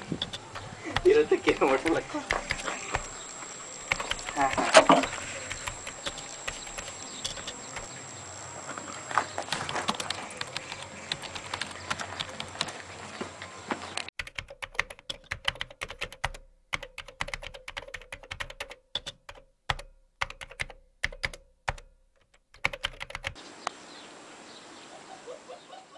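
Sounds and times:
keyboard key clicks: 0.0 - 7.9, 9.5 - 12.7, 14.2 - 23.4
faint outdoor background noise: 0.0 - 25.9.

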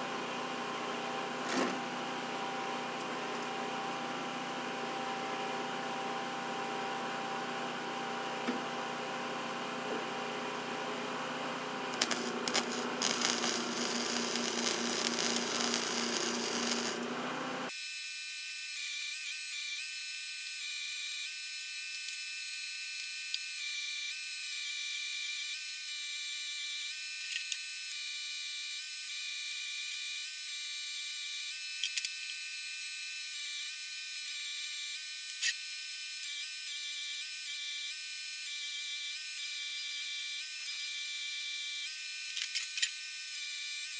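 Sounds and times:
welder steady hum: 0.0 - 43.9
welder arc crackling and sizzling: 11.9 - 17.2
thin high buzz: 11.9 - 43.9.

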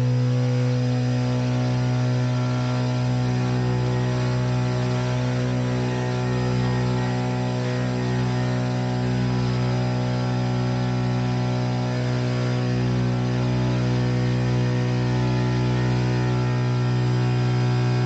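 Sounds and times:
electric propeller drone: 0.0 - 18.0.

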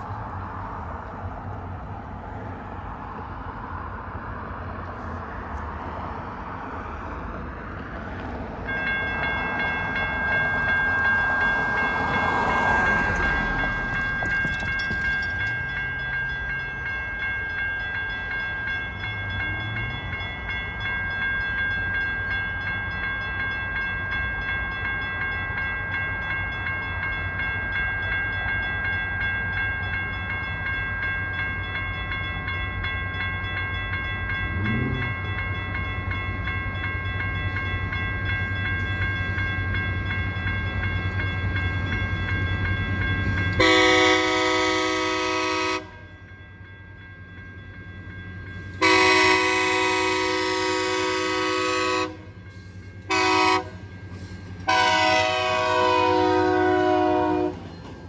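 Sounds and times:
railroad crossing bell ringing: 0.0 - 58.0.

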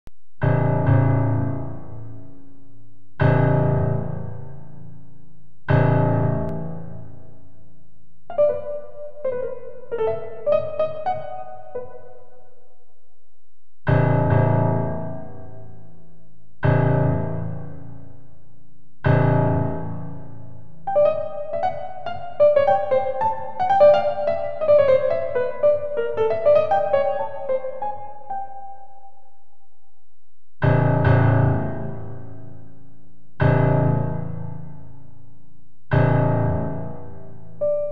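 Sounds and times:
heavy low piano chords: 0.4 - 37.9.

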